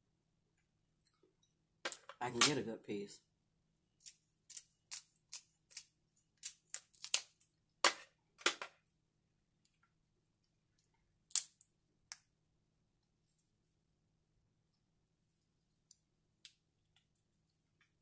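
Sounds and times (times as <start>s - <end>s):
crab shell cracking: 4.0s - 7.4s, 11.3s - 12.2s.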